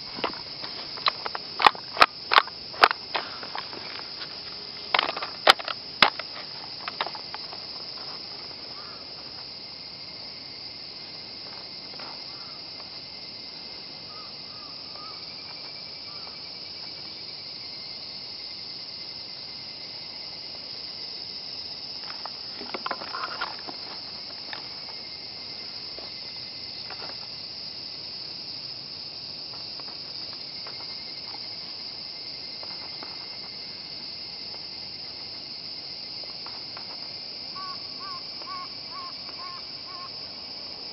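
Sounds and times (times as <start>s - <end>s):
insects chirring: 0.0s - 40.9s.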